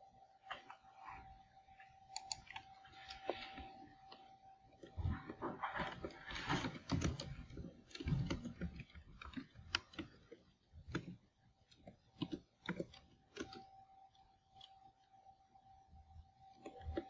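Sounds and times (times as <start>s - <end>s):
faint steady hum: 0.0s - 17.0s
computer keyboard typing: 2.1s - 15.1s.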